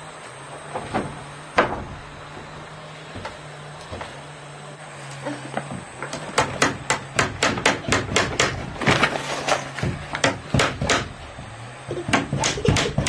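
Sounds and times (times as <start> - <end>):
hammer driving nail into wood: 10.2 - 11.1.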